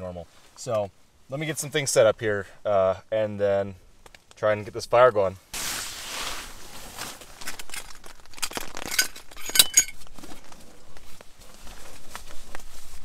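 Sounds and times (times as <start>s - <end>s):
camping gear clicking and clattering: 7.0s - 13.0s
ringing clinks: 8.9s - 10.0s.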